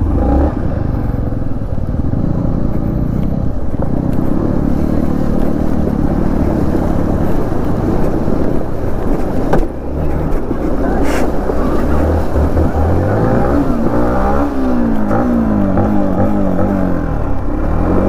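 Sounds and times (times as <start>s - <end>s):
motorcycle engine running: 0.0s - 18.0s
water splashing: 3.9s - 15.9s.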